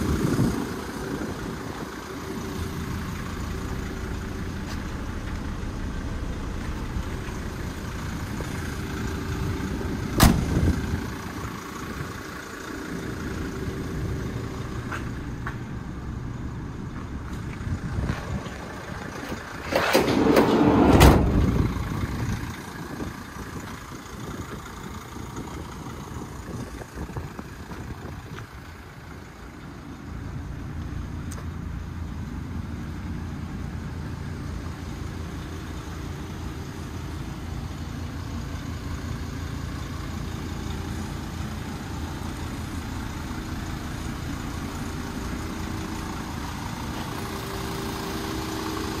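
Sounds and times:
metal van doors banging shut: 0:10.2 - 0:10.7, 0:19.6 - 0:21.8.

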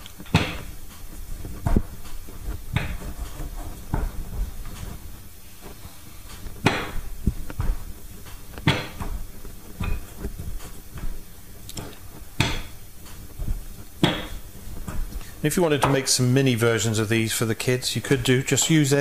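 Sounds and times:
rolling pin knocking on wooden board: 0:00.2 - 0:05.0, 0:06.4 - 0:11.2, 0:11.8 - 0:15.2.

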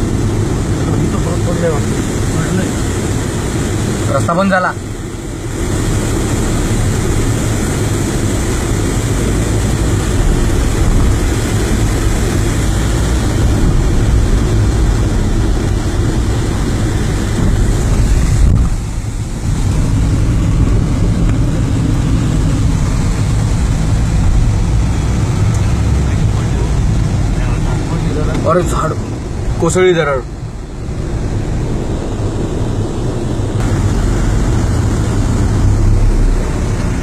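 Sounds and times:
heavy rain rushing: 0:00.0 - 0:37.0
vehicle engine and tyres rumbling: 0:00.0 - 0:37.0.

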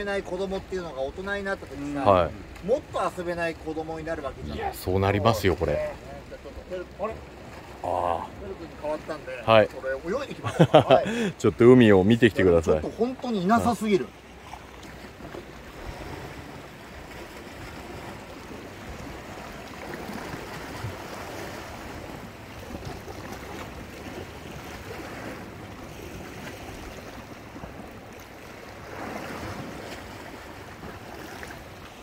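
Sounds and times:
waves washing over rocks: 0:15.0 - 0:32.0.

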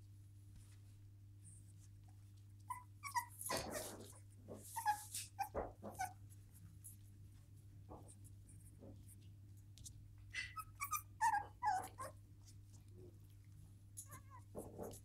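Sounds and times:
puppies crying: 0:02.7 - 0:06.2, 0:10.4 - 0:12.2.

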